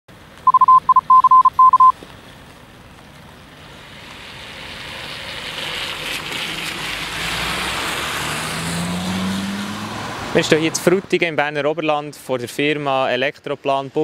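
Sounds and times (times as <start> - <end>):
car tyres on wet pavement: 0.1 - 11.6
high electronic beeps: 0.5 - 1.9.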